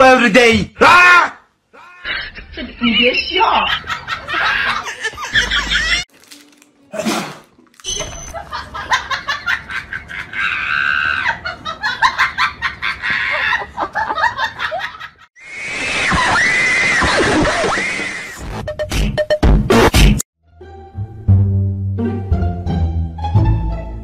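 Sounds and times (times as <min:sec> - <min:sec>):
person laughing hard: 0:03.8 - 0:06.0, 0:08.4 - 0:15.2
long loud wavering scream: 0:15.4 - 0:18.3.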